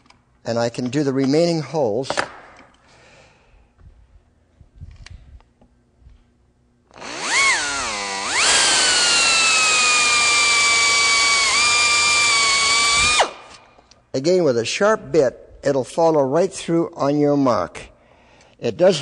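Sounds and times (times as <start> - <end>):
air drill whining: 6.9 - 13.6.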